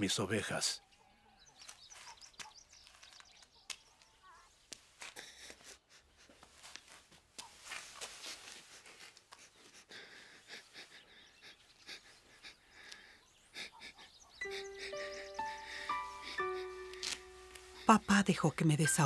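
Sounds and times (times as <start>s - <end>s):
girl crying: 14.4s - 18.2s.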